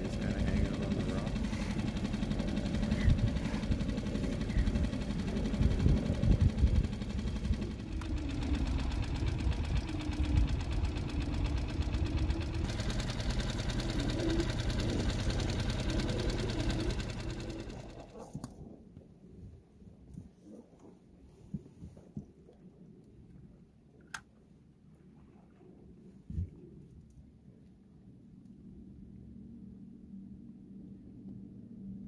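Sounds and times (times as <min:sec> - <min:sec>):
boat motor idling: 0:00.0 - 0:18.5.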